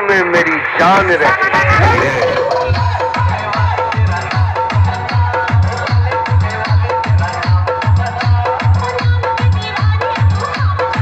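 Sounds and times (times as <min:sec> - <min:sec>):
electronic dance music: 0:00.0 - 0:11.0
repeating synth line: 0:00.7 - 0:03.5
heavy kick drum: 0:01.6 - 0:11.0.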